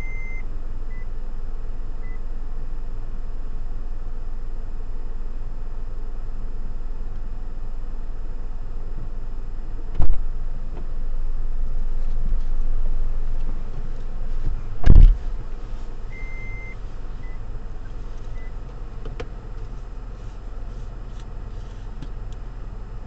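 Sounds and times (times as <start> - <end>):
short electronic beep: 0.0 - 1.1, 16.1 - 17.4
low engine hum: 0.0 - 23.0
loud thump: 14.8 - 15.4.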